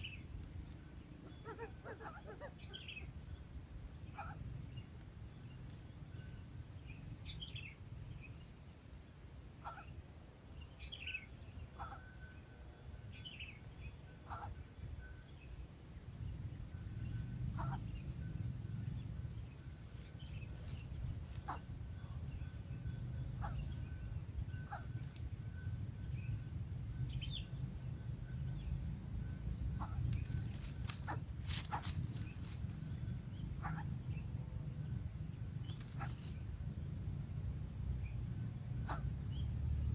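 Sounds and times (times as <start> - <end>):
insect trill: 0.0 - 39.9
low wind rumble: 14.6 - 39.9
faint clicks and rustles: 30.0 - 33.0.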